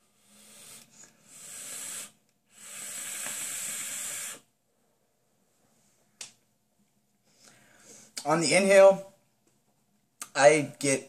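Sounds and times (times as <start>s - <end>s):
airy hiss of inhaling vape: 0.0s - 4.5s
hiss of exhaled vapour: 0.0s - 4.5s.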